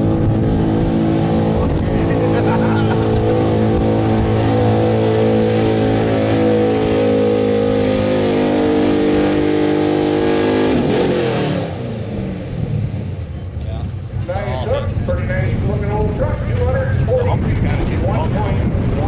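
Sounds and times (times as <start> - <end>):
pickup engine at full throttle: 0.0 - 19.0.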